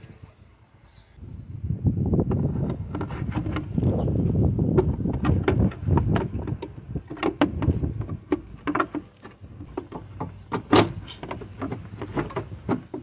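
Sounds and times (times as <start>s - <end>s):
pipes knocking against bracket: 4.7s - 13.0s.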